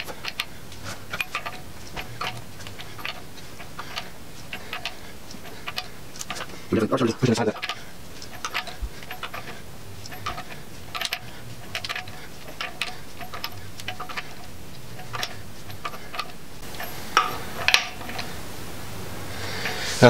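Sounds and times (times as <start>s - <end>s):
hand ratchet clicking: 0.0s - 18.4s.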